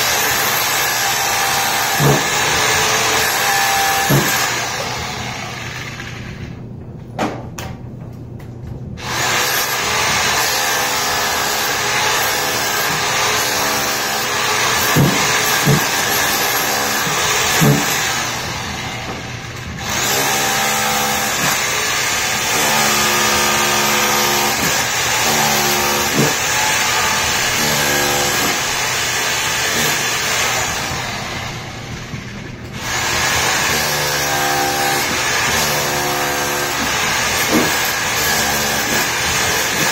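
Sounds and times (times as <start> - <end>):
hammer drill chiselling concrete: 0.0 - 6.6, 9.0 - 39.9
sharp knocks: 14.9 - 16.0.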